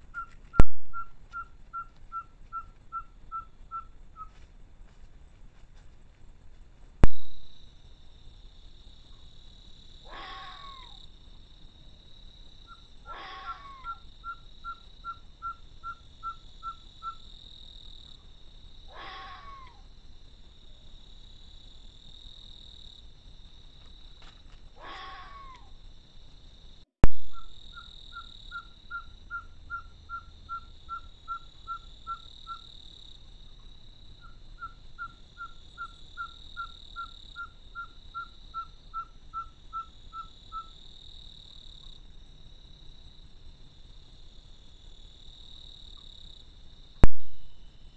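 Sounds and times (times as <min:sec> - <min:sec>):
high insect drone: 0:07.3 - 0:47.9
fox yowling: 0:10.1 - 0:11.0, 0:13.1 - 0:14.0, 0:18.9 - 0:19.8, 0:24.8 - 0:25.7
sharp loud click: 0:47.0 - 0:47.6.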